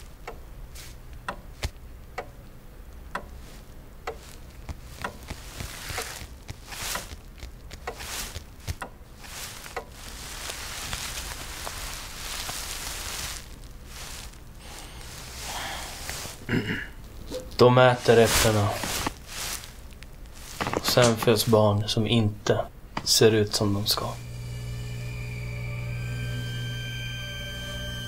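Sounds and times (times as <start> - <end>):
soft rustling of coverall: 0.0 - 2.0, 2.9 - 24.2
low steady hum: 0.0 - 28.0
sharp ticks: 1.1 - 3.4.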